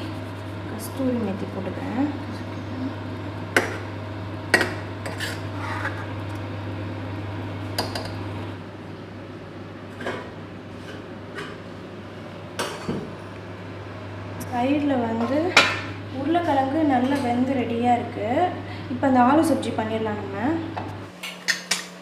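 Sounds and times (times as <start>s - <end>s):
steady low hum: 0.0s - 21.2s
metal ladle scraping a pot: 5.0s - 6.1s.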